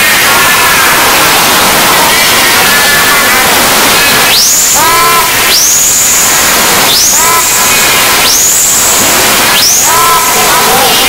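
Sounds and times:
hiss and static: 0.0s - 11.0s
rising whistle-like sweep: 4.2s - 10.4s.

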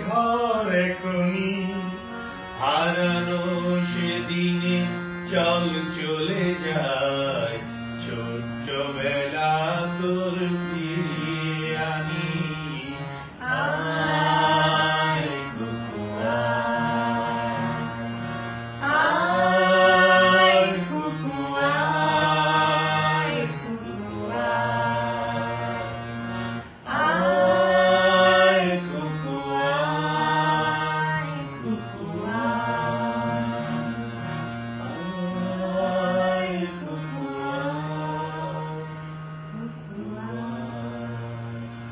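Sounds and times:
man singing: 0.0s - 13.7s, 26.9s - 41.8s.

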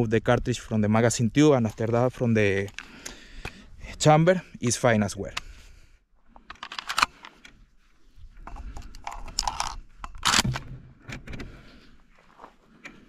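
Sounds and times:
shotgun clicking and rattling: 6.3s - 7.6s, 8.4s - 11.6s.

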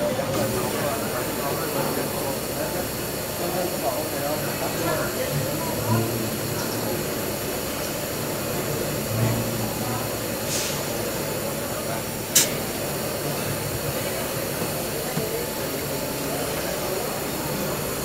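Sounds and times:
industrial machinery noise: 0.0s - 18.0s
compressed air hissing: 10.0s - 14.7s.

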